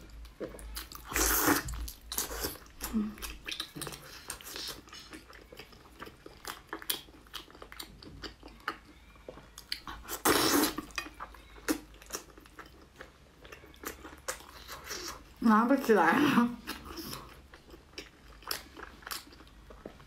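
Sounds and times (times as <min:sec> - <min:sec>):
person chewing meat: 0:00.0 - 0:15.4, 0:16.6 - 0:20.0
slurp: 0:01.0 - 0:01.8, 0:10.1 - 0:11.0.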